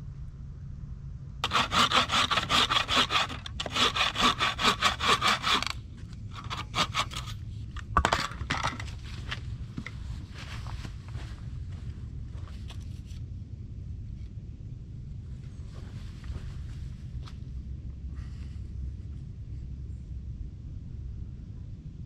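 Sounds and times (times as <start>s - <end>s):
hand saw cutting wood: 1.4s - 5.8s, 6.4s - 7.4s.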